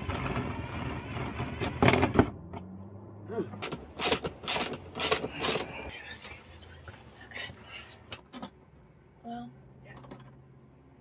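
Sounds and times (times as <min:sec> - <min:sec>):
loud grinding bursts: 0:03.6 - 0:05.7.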